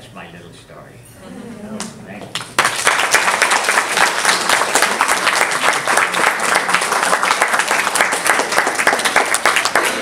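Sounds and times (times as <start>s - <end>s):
children applauding: 2.6s - 10.0s.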